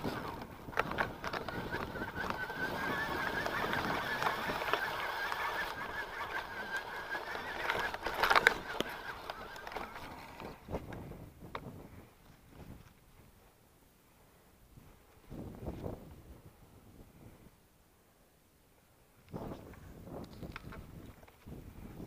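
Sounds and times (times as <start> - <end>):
bike high-pitched whine: 0.0 - 10.4
bike rattles and knocks: 0.0 - 11.0.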